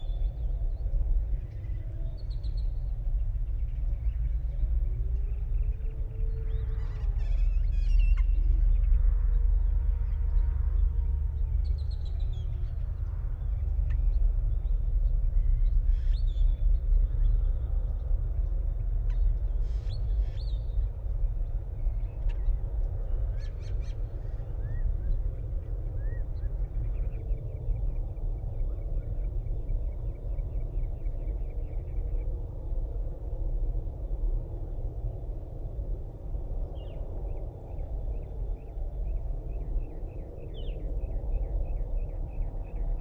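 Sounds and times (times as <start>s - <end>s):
steady low rumble: 0.0s - 43.0s.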